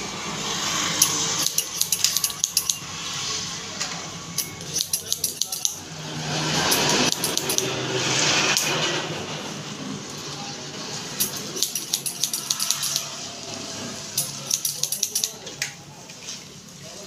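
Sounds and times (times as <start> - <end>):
scissors snipping hair: 1.0 - 2.8, 4.4 - 5.8, 6.7 - 7.8, 11.2 - 13.1, 14.2 - 15.4.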